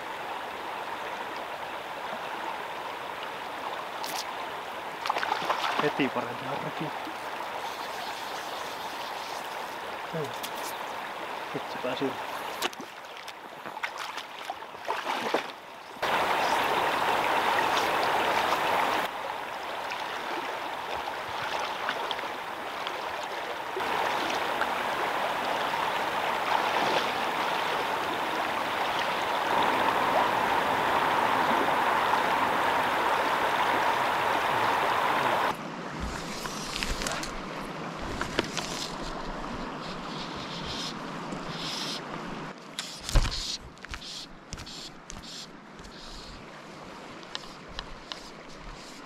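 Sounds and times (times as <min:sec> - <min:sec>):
river rapid rushing: 0:14.4 - 0:38.2.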